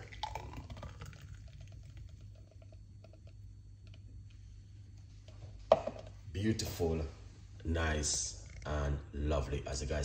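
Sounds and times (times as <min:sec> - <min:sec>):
thick drink pouring into glass: 0:00.0 - 0:03.3.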